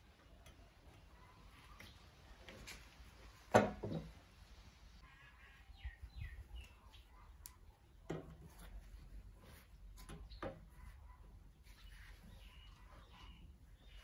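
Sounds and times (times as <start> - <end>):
faint bird chirps: 5.0 - 8.0, 10.0 - 14.0.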